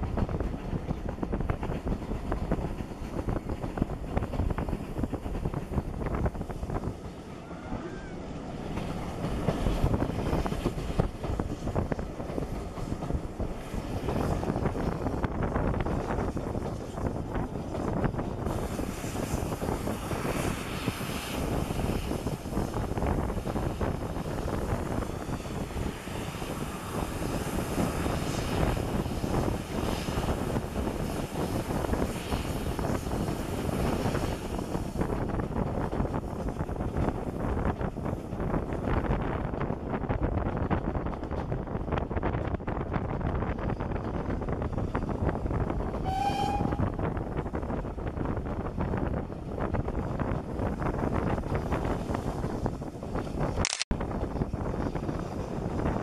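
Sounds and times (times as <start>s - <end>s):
train coaches rumbling on track: 0.0s - 56.0s
wind buffeting microphone: 0.0s - 56.0s
steam whistle toot: 46.0s - 46.9s.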